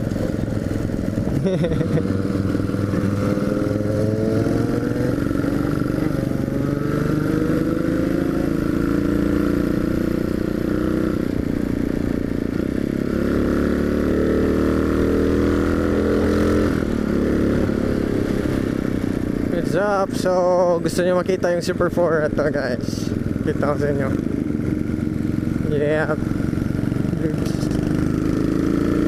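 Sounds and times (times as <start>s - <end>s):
motorcycle engine accelerating: 0.0s - 29.0s.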